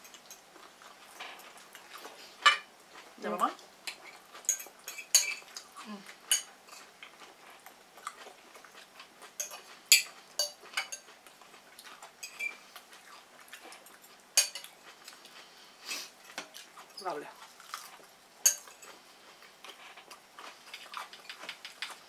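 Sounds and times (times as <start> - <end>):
forks clinking on ceramic plates: 4.5 - 5.5, 9.4 - 11.1, 12.2 - 12.5, 14.4 - 14.7, 18.4 - 18.9.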